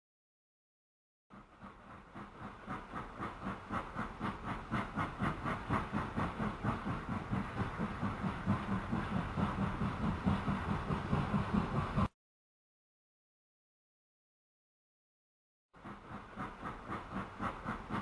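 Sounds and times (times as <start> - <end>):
model train rolling rumble: 1.4 - 12.1, 15.8 - 18.0
model train wheels clicking: 1.4 - 12.1, 15.8 - 18.0.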